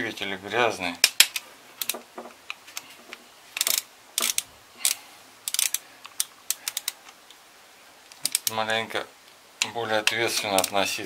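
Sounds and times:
ratchet wrench clicking: 0:03.6 - 0:07.0, 0:08.2 - 0:08.5.

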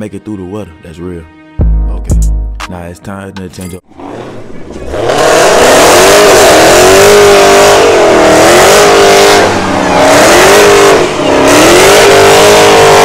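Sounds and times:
exhaust rush: 0:03.9 - 0:13.0
car engine revving hard: 0:04.0 - 0:13.0.

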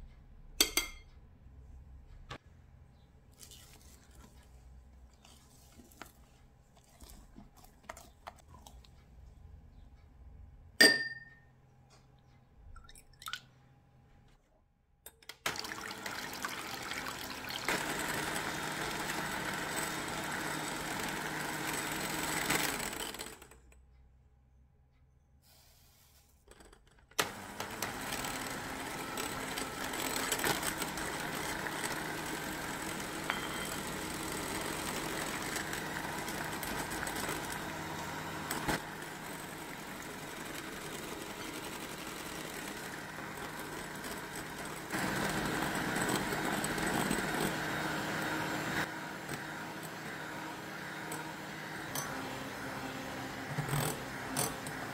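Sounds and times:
electric hand mixer whipping: 0:15.5 - 0:23.3, 0:27.2 - 0:54.9.

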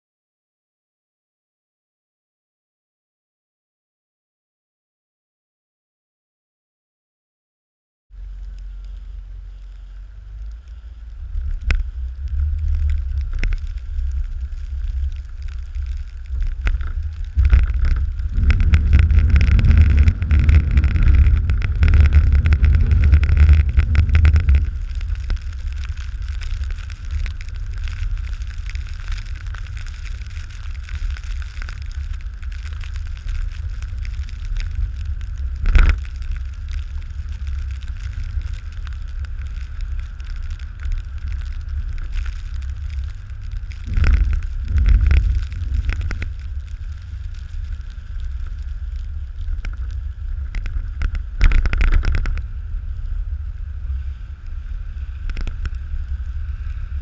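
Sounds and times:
truck engine rumble: 0:08.2 - 0:51.4
wind on microphone: 0:08.2 - 0:57.0.

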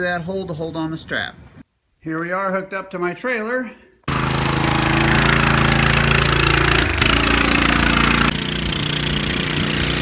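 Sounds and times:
small engine running: 0:04.1 - 0:10.0.

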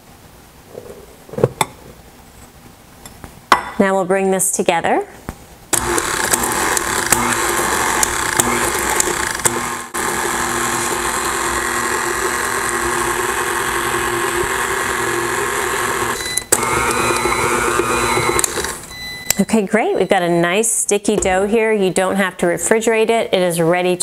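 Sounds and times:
stand mixer running: 0:05.8 - 0:18.8.

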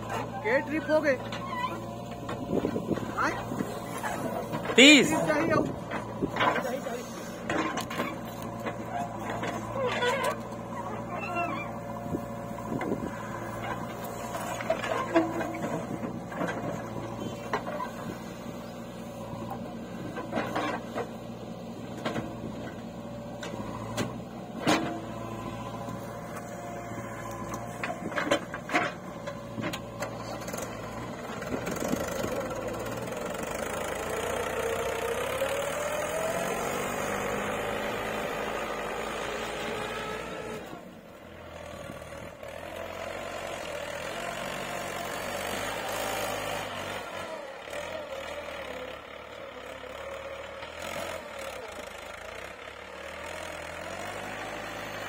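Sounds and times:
backhoe bucket clanking: 0:00.0 - 0:11.8, 0:23.4 - 0:34.4
diesel engines running: 0:00.0 - 0:55.0
tractor pulling away: 0:00.0 - 0:55.0.

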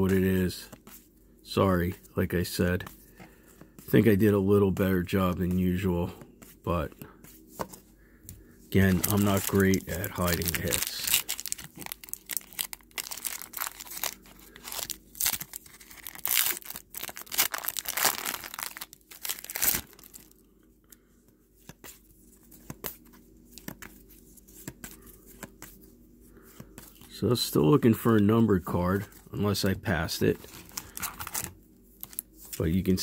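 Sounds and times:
foil wrapper tearing and crinkling: 0:08.8 - 0:20.4.

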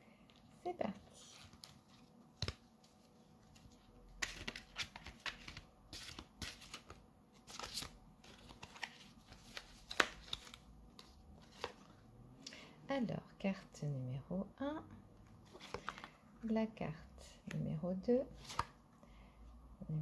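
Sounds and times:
cards being shuffled: 0:01.0 - 0:11.9, 0:15.4 - 0:16.2, 0:18.4 - 0:18.8.

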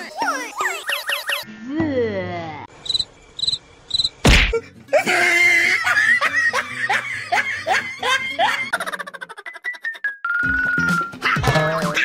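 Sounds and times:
falling chirps: 0:02.7 - 0:04.3.

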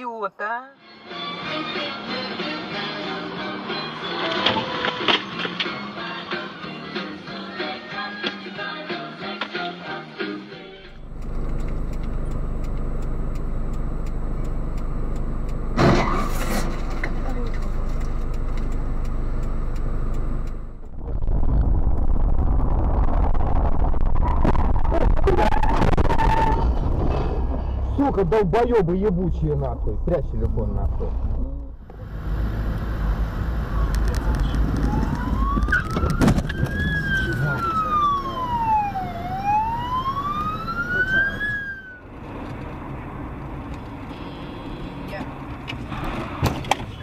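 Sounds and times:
car engine and road noise: 0:10.7 - 0:47.0
light regular ticking: 0:10.9 - 0:15.8, 0:17.2 - 0:21.0
heavy rumble: 0:10.9 - 0:40.4
ambulance siren wailing: 0:31.9 - 0:42.1.

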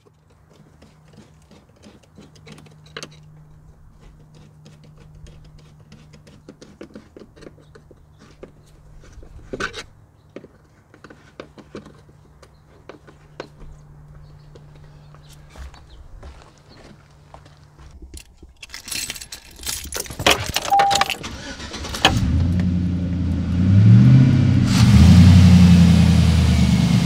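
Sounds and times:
plastic parts clattering: 0:18.0 - 0:21.6.

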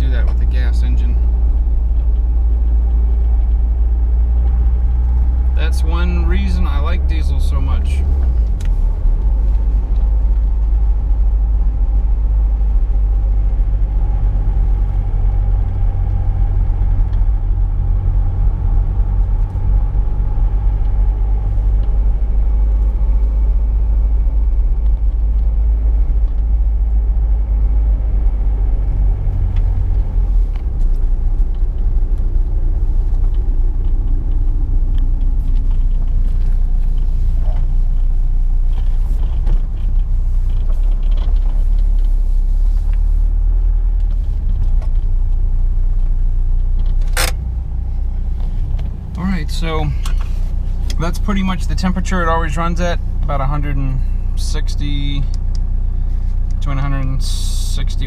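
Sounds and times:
diesel engine idling: 0:00.0 - 0:58.0
sharp click: 0:47.0 - 0:47.4.

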